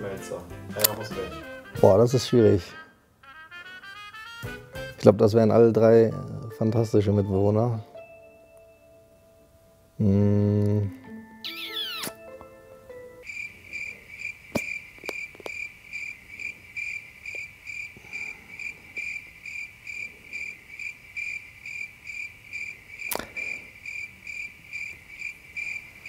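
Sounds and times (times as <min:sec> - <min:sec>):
crickets chirping: 0:11.3 - 0:26.0
faint clicks: 0:23.1 - 0:23.3.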